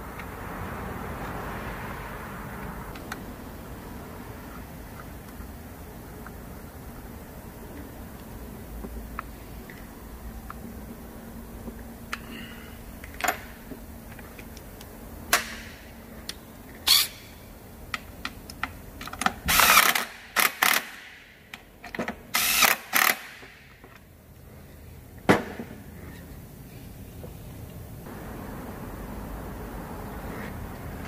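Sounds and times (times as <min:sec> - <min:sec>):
power tool bursts: 0:22.4 - 0:23.4.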